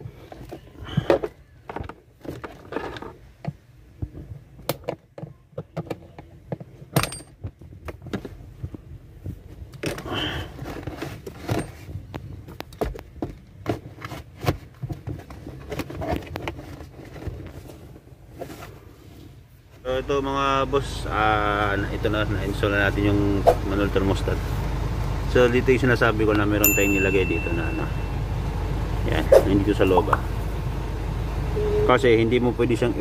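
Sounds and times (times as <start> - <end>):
rustles of hand work: 0.0 - 19.9.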